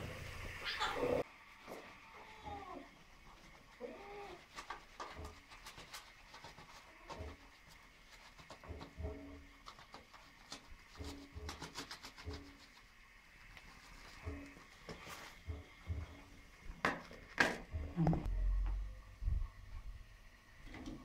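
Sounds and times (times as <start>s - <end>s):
cat chirping meows: 0.6s - 1.2s.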